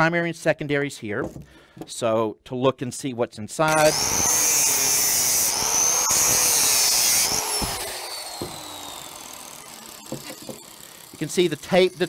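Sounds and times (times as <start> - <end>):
angle grinder cutting metal: 3.7 - 12.0
grinder disc spinning down: 3.7 - 12.0.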